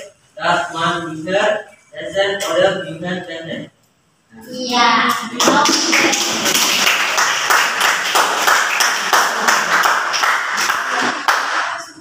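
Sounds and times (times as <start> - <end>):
students clapping: 5.3 - 12.0.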